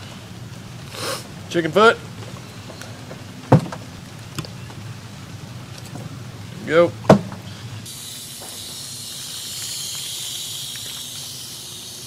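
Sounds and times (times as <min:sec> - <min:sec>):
hose nozzle spraying water: 0:07.9 - 0:12.0.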